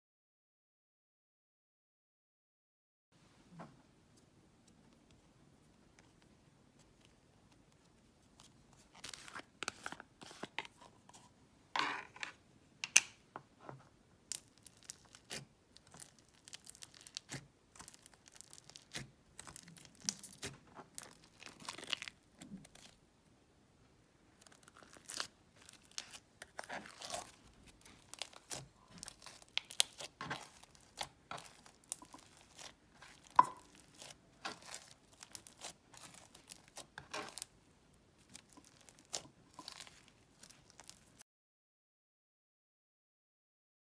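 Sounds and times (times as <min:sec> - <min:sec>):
slime squished by hand: 0:14.3 - 0:23.0, 0:24.4 - 0:37.5, 0:38.2 - 0:41.2.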